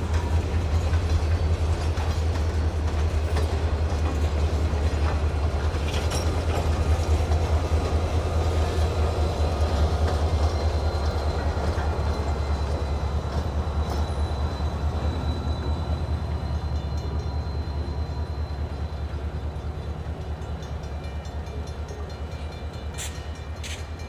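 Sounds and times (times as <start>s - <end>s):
diesel locomotive: 0.0s - 24.0s
low train rumble: 0.0s - 24.0s
train wheels clacking over rail joints: 0.0s - 24.0s.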